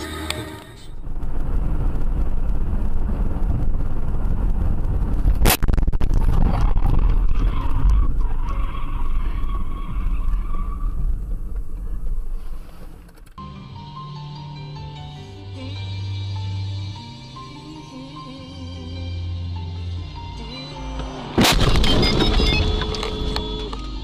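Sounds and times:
car road and engine rumble: 0.0s - 24.0s
sharp bang: 21.3s - 23.5s.

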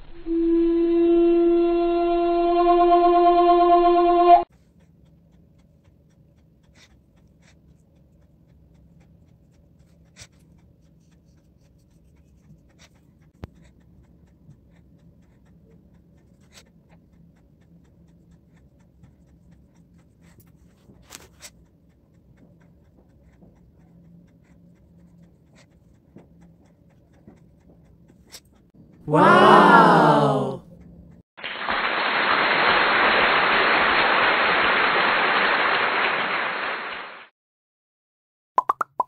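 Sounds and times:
flute-like held note: 0.0s - 4.4s.

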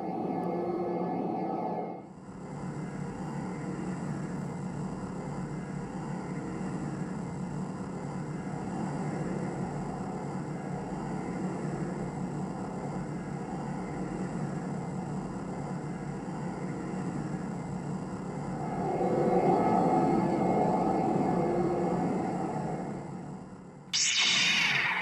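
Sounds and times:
spaceship engine rumble: 18.4s - 23.4s.

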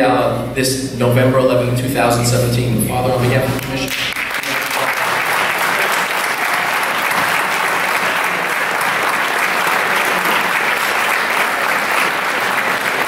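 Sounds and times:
audience applause: 3.6s - 13.0s.

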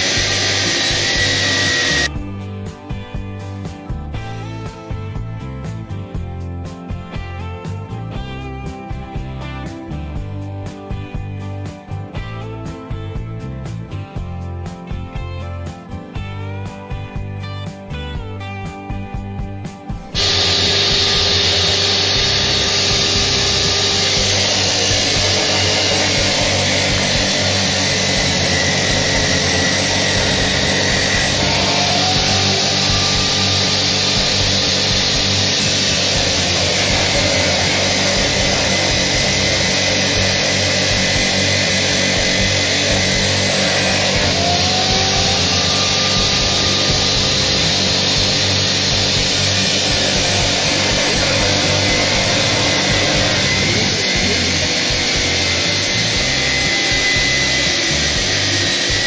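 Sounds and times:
cut-off saw grinding steel: 0.0s - 2.1s, 20.2s - 59.0s
motor hum: 0.0s - 2.1s, 20.2s - 59.0s
rising tone of wheel: 0.0s - 2.1s, 20.2s - 59.0s
guitar music: 0.0s - 59.0s.

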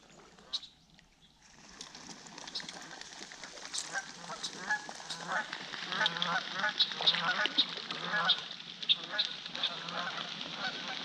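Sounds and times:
geese honking: 3.8s - 11.0s.

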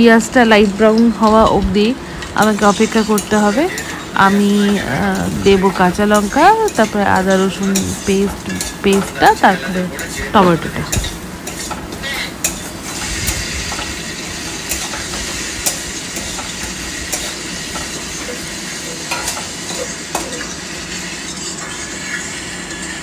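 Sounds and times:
onions sizzling in oil: 0.0s - 23.0s
spatula scraping metal pan: 2.6s - 21.0s.

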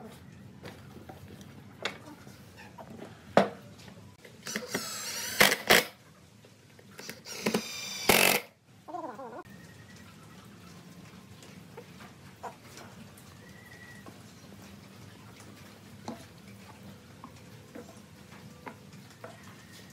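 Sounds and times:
cordless drill boring into wood: 4.4s - 5.9s, 7.0s - 8.5s
sharp drill clicks: 4.4s - 6.0s, 7.0s - 8.5s.

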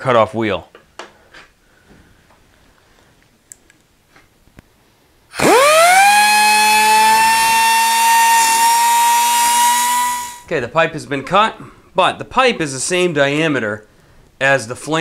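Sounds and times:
cutoff wheel cutting steel pipe: 5.4s - 10.5s
pneumatic cutoff tool whining: 5.4s - 10.5s.

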